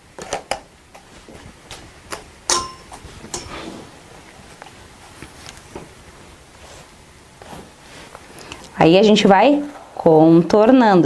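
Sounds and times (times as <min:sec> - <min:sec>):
hair rustling: 0:02.6 - 0:10.2.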